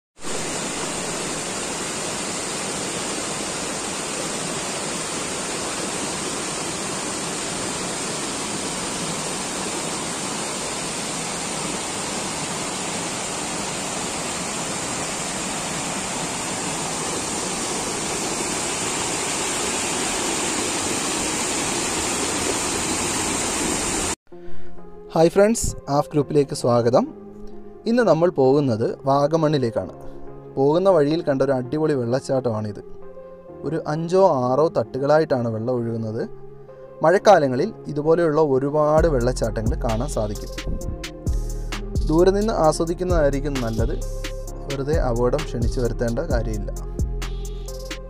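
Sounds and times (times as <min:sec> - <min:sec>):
waterfall rushing: 0:00.2 - 0:24.2.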